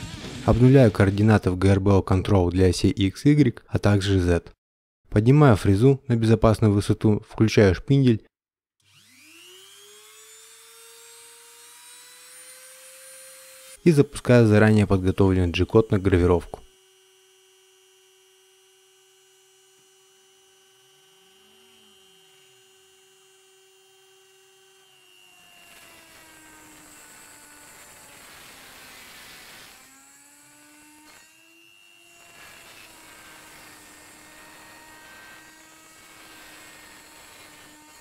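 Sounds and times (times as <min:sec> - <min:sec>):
router spindle whining: 0:00.0 - 0:00.8, 0:08.9 - 0:38.0
hissing cutting noise: 0:00.0 - 0:01.5, 0:13.2 - 0:16.5.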